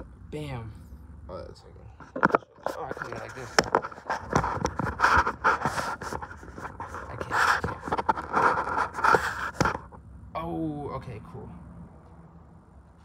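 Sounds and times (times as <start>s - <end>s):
phone handling knocks and scraping: 2.0s - 10.0s.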